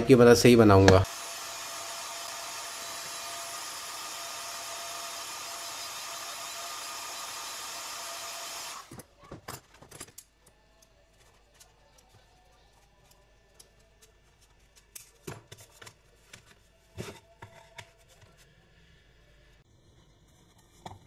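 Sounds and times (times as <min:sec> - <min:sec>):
heat gun blowing air: 0:01.0 - 0:08.9.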